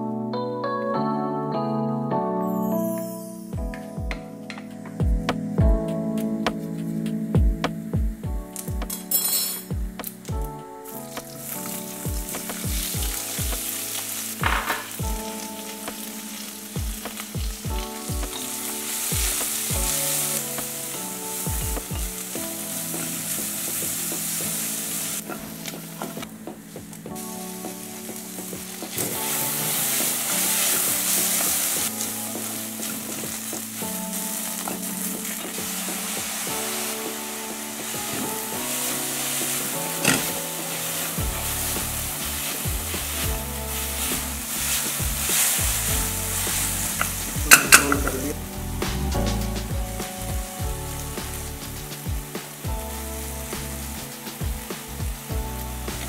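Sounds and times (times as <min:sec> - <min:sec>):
onions sizzling in oil: 0:10.9 - 0:26.3, 0:27.2 - 0:49.6, 0:50.5 - 0:56.0
wooden spatula stirring: 0:34.4 - 0:48.2.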